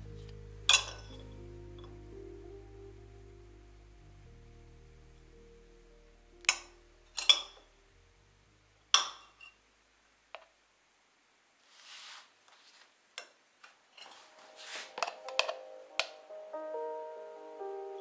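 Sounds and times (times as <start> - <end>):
spoons clinking on glass and ceramic: 0.7 - 1.2, 7.2 - 7.6
soft scrape: 11.6 - 13.0, 14.0 - 15.4.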